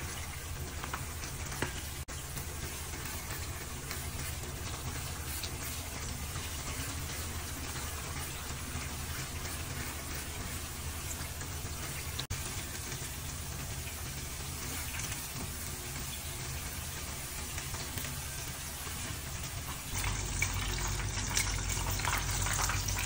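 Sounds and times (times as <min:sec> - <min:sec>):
spoon stirring in a wok: 0:00.0 - 0:13.2
hot oil sizzling in a wok: 0:00.0 - 0:23.0.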